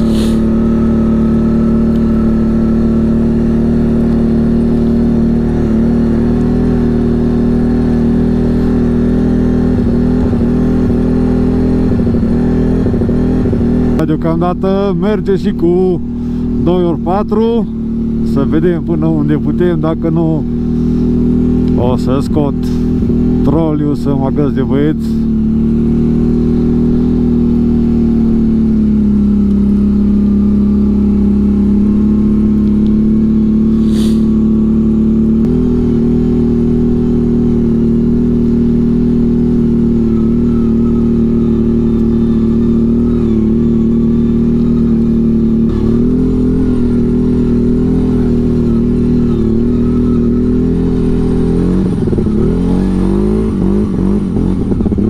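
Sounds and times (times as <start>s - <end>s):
quad bike engine running: 0.0s - 55.0s.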